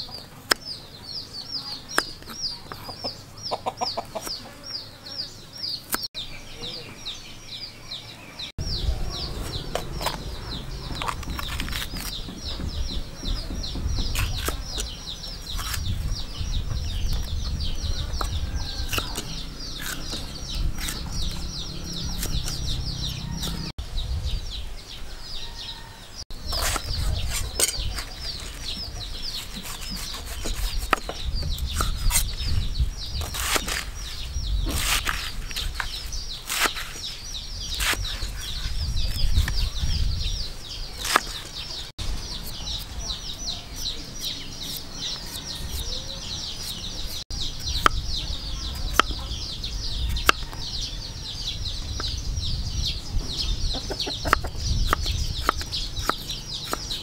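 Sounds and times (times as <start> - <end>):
knife slicing vegetables: 18.2 - 23.7, 26.5 - 32.4.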